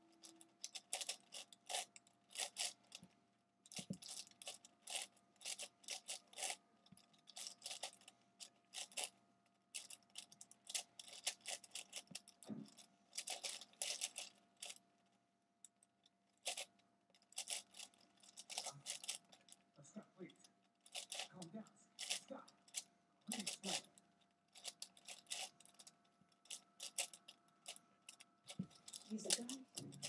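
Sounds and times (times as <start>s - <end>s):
puzzle cube plastic clicking: 0.2s - 3.0s, 20.9s - 30.0s.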